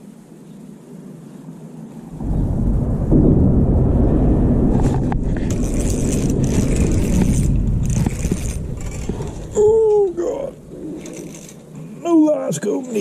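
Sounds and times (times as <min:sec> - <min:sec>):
heavy traffic rumble overhead: 0:02.1 - 0:12.1.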